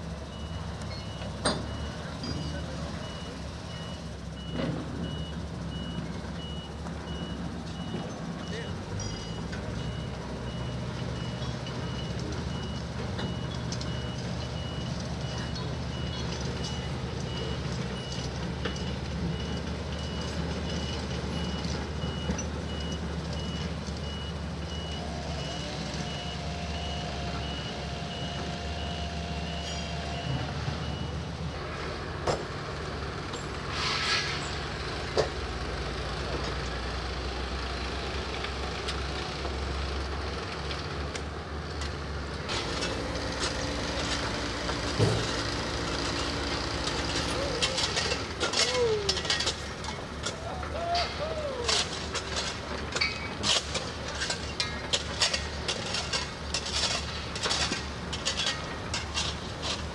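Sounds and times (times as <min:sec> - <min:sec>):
diesel engine running: 0:00.0 - 0:59.9
reversing alarm beeping: 0:00.2 - 0:31.3
short hiss: 0:33.7 - 0:34.5.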